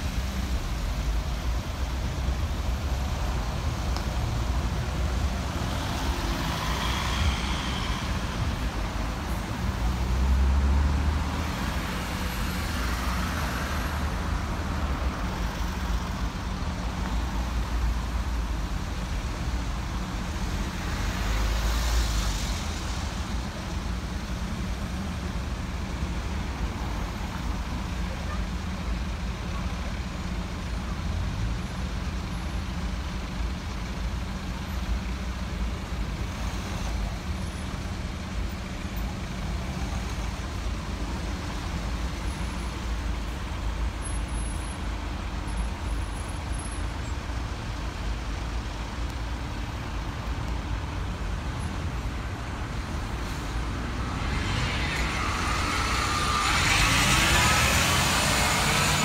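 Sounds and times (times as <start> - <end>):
road traffic engines idling: 0.0 - 59.0
bus pulling away: 49.6 - 59.0.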